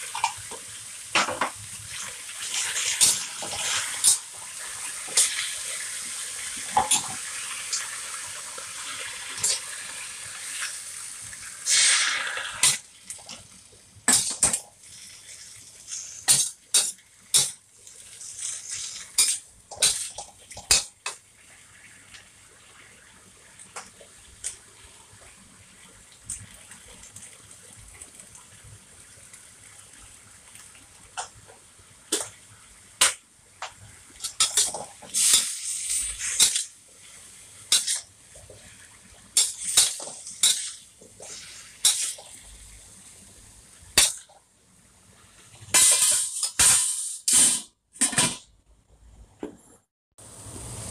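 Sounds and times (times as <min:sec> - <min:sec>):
water pouring into hot wok: 0:00.0 - 0:31.4, 0:33.8 - 0:43.2
metal spatula scraping wok: 0:11.7 - 0:12.8, 0:18.2 - 0:20.8, 0:34.2 - 0:36.7, 0:37.7 - 0:38.0, 0:39.4 - 0:42.2.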